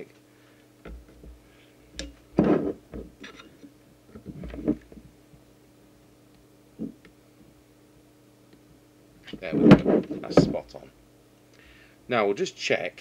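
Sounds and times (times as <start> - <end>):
faint steady hum: 0.0 - 13.0
soft handling knocks and rubs: 9.3 - 10.8.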